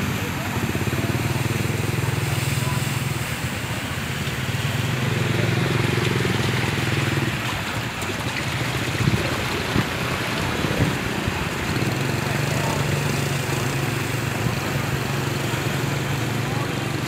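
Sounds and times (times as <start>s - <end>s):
floodwater sloshing and splashing: 0.0s - 17.0s
steady engine hum: 0.0s - 17.0s.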